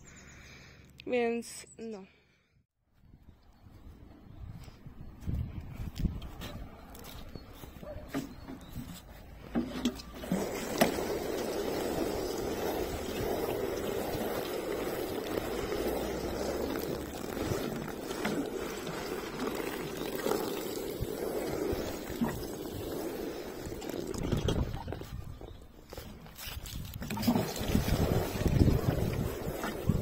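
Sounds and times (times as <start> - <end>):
water splashing on cardboard: 10.1 - 25.0, 26.8 - 30.0.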